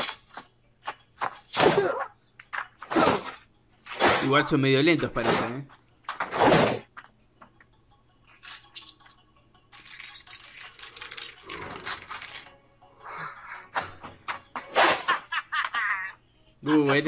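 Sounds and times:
fight scene background music: 0:00.0 - 0:07.1, 0:13.6 - 0:15.4.

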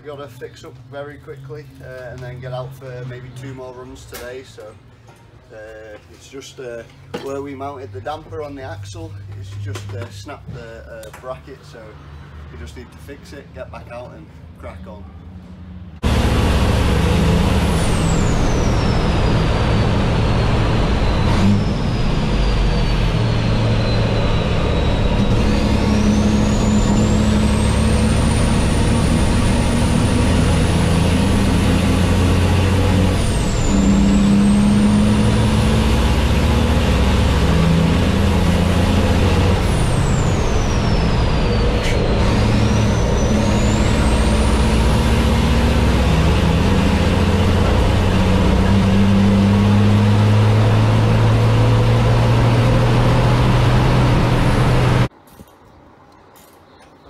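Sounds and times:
high whine: 0:16.0 - 0:45.3
truck diesel engine running hard: 0:16.0 - 0:55.1.

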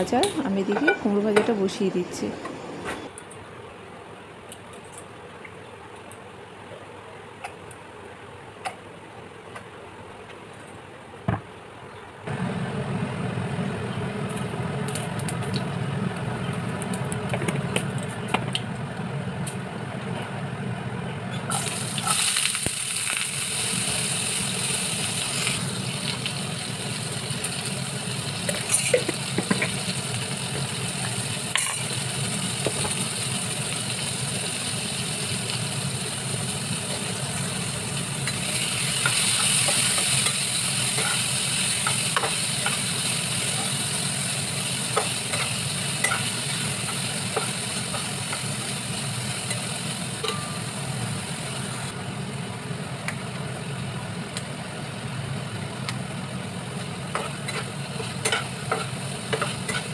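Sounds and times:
steady low hum: 0:11.6 - 0:21.8
food sizzling in hot oil: 0:21.5 - 0:51.9, 0:56.7 - 0:59.9.

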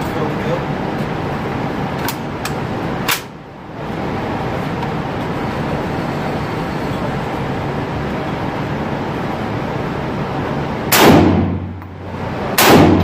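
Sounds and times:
ventilation rushing noise: 0:00.0 - 0:13.0
rifle shot: 0:10.9 - 0:11.8, 0:12.5 - 0:13.0.

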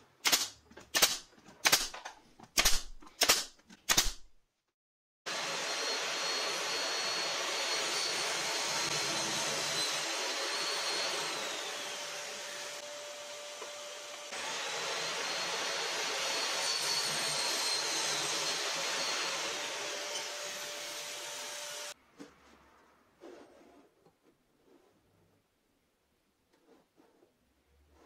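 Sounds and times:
power tool motor whining: 0:05.3 - 0:20.4.

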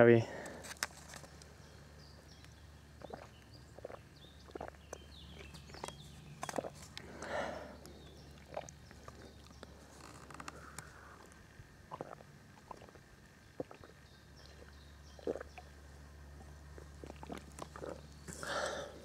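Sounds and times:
person sipping and swallowing: 0:03.0 - 0:05.8, 0:06.4 - 0:15.6, 0:16.8 - 0:19.0.

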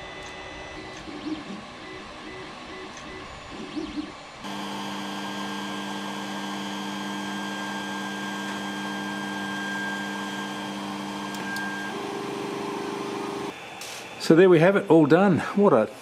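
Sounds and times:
printer whirring hum: 0:00.0 - 0:15.0.

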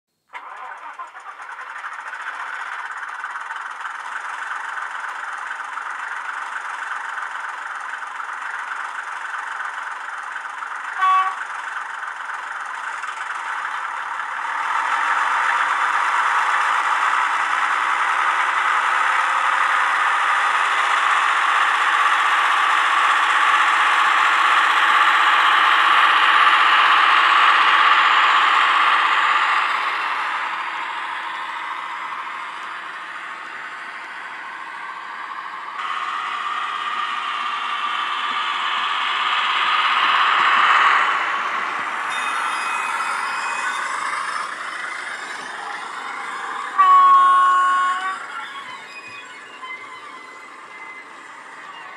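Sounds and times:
model train diesel engine sound: 0:00.1 - 0:51.9
train horn toot: 0:10.9 - 0:11.6, 0:46.7 - 0:48.6.

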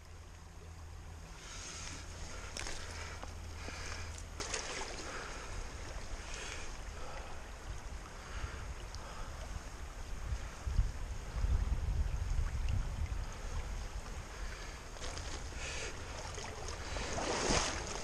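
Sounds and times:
river water splashing: 0:00.0 - 0:18.0
wind on microphone: 0:07.5 - 0:14.7.

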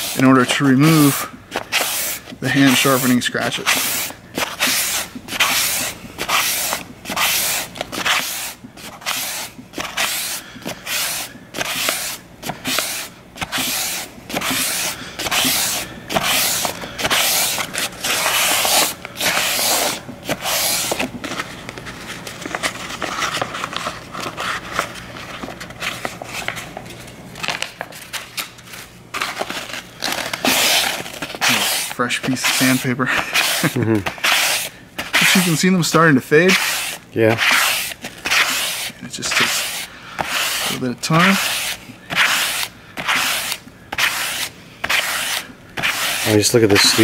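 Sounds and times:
sandpaper rubbing on knife blade: 0:00.0 - 0:21.0, 0:30.4 - 0:47.0.

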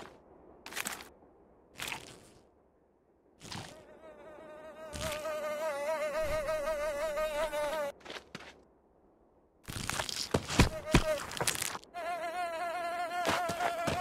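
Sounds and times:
buzzing insect-like whine: 0:03.4 - 0:07.9, 0:10.5 - 0:14.0.

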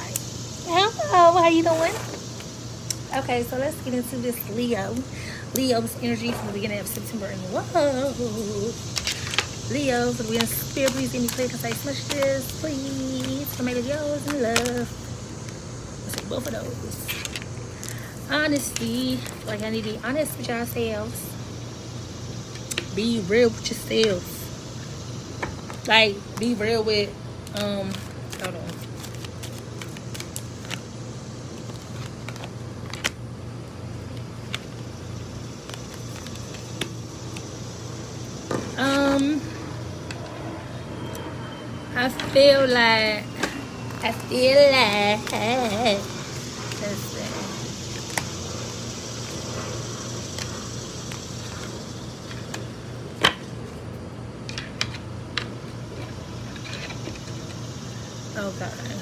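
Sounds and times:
cards shuffling: 0:08.9 - 0:19.6, 0:27.4 - 0:30.9, 0:31.5 - 0:33.2, 0:35.6 - 0:37.6
fingernails tapping cards: 0:10.1 - 0:16.6.

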